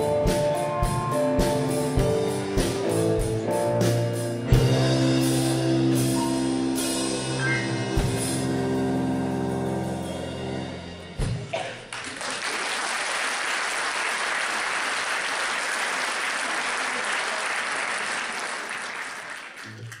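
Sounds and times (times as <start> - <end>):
audience applauding: 11.6 - 20.0.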